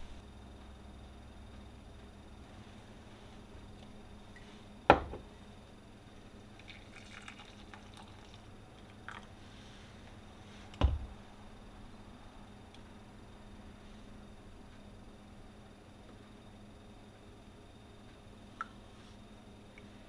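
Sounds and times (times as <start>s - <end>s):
coffee press set down on counter: 4.9s - 5.2s
glass mug knocking on countertop: 4.9s - 5.2s
coffee pouring into mug: 6.6s - 9.4s.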